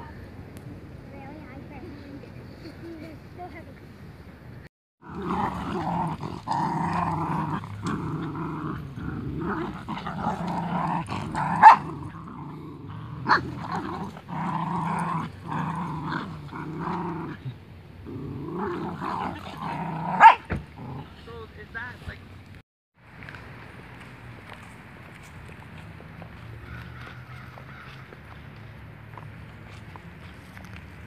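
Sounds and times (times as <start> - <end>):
puppies growling: 5.0 - 21.2.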